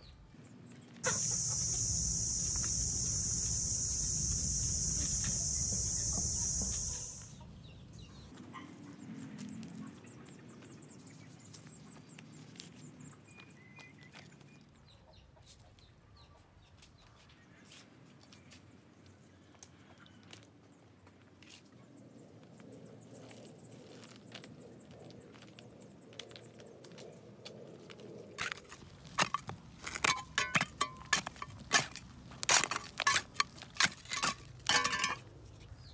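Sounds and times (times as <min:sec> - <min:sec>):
chickens clucking: 0:01.1 - 0:03.8
loud high-pitched hiss: 0:01.1 - 0:07.4
scraping soil and stones: 0:28.4 - 0:35.3.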